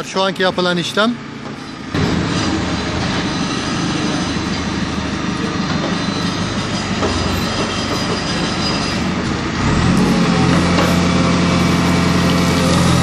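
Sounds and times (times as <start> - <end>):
diesel engine under load: 0.0 - 13.0.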